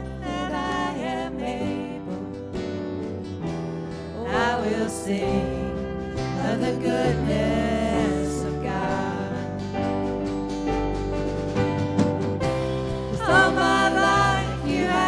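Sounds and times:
person singing: 0.0 - 2.7, 4.1 - 10.0, 13.1 - 15.0
worship band playing: 0.0 - 15.0.

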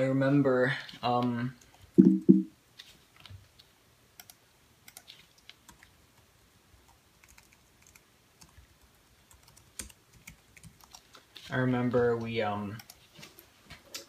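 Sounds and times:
keystrokes on a computer keyboard: 4.2 - 5.9, 6.9 - 8.6, 9.3 - 11.1.

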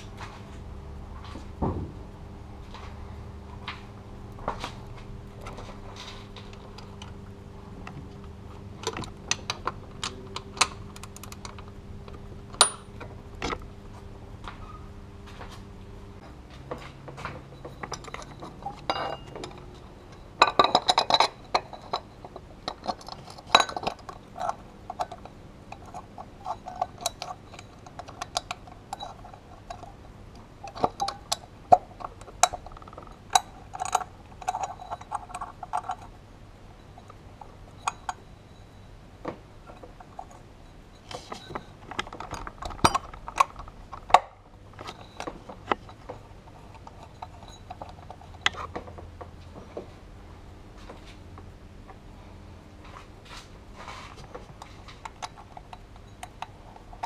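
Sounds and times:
faint steady hum: 0.0 - 57.0
metal tools clicking and clinking: 8.8 - 13.6, 17.2 - 30.0, 30.6 - 36.1, 39.6 - 49.0, 54.6 - 57.0.

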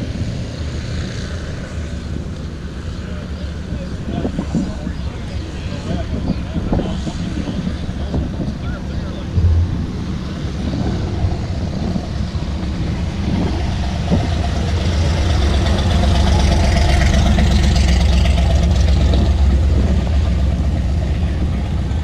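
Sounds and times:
car engine rumbling: 9.3 - 15.6.

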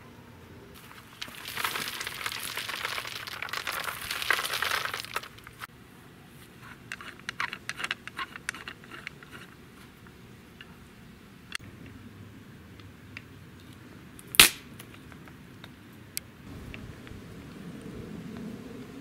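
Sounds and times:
nuts rattling in basket: 0.8 - 5.7.

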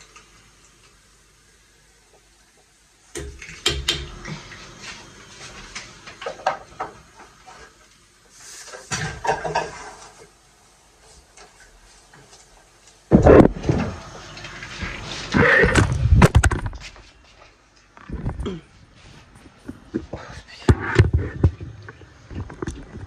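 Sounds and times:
dishes and pot clinking: 8.9 - 10.0.

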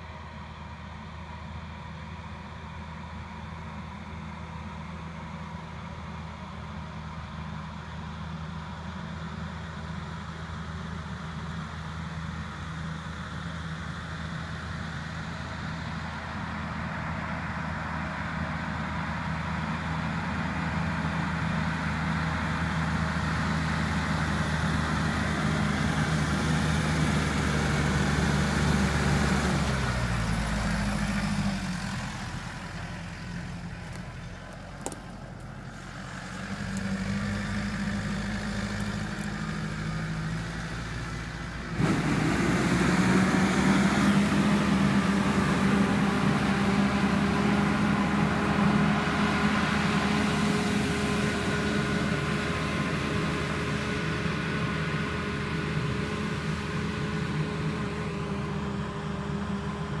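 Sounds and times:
tractor diesel engine running: 0.0 - 60.0.

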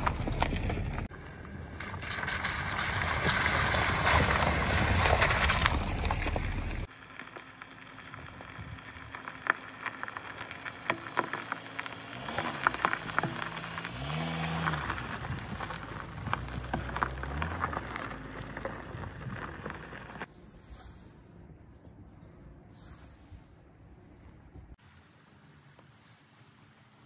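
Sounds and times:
tyres crunching on gravel: 0.0 - 20.3
car engine and tyre hum: 0.0 - 27.0.

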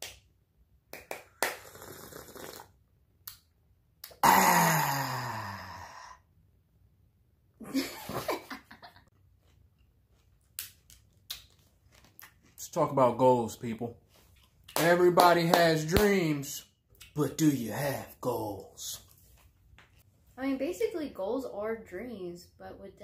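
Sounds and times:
sipping from a mug: 1.7 - 2.7
man's throaty falling sound: 4.1 - 6.2.

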